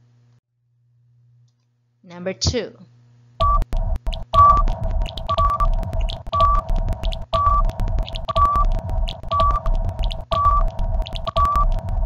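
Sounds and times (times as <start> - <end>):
pulsing bass: 3.4 - 12.0
quick ticking: 3.4 - 12.0
steady electronic tone: 3.4 - 12.0.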